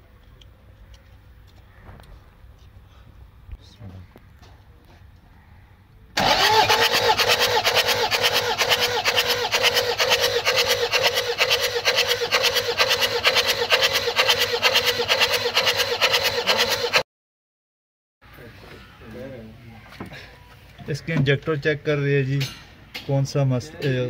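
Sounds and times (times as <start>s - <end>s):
starter motor whine: 6.2s - 17.0s.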